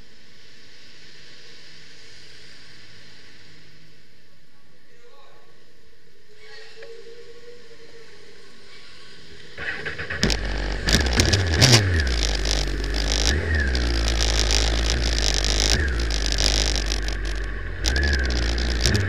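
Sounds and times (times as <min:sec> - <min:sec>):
motorcycle engine starting and revving: 0:09.6 - 0:19.0.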